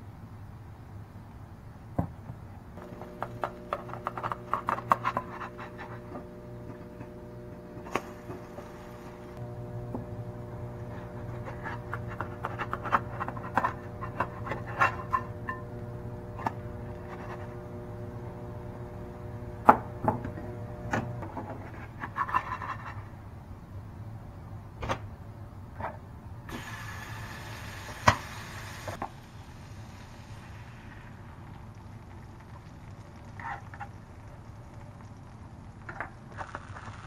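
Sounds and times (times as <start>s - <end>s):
steady hiss: 0.0s - 22.0s, 23.0s - 37.0s
spatula scraping nonstick pan: 2.8s - 9.2s, 10.1s - 19.0s, 20.8s - 23.2s.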